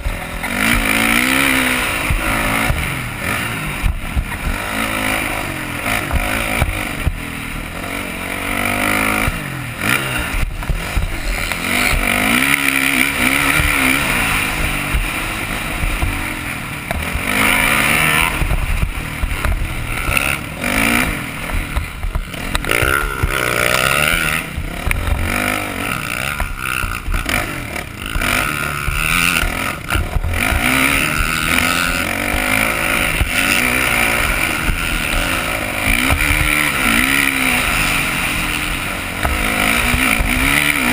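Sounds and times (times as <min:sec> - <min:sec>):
motocross bike engine revving: 0:00.0 - 0:40.9
bike knocks and rattles: 0:08.7 - 0:37.3.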